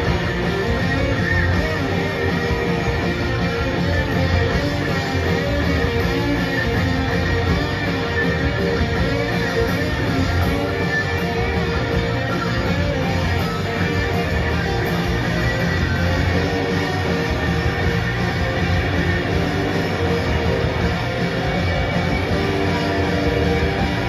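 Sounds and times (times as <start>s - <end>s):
live rock band playing: 0.0s - 24.0s.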